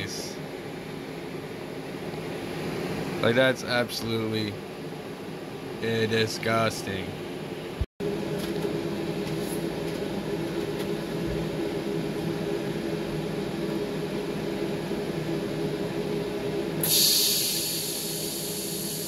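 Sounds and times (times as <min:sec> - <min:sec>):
machine hum: 0:00.0 - 0:19.0
welding torch hissing: 0:16.8 - 0:19.0.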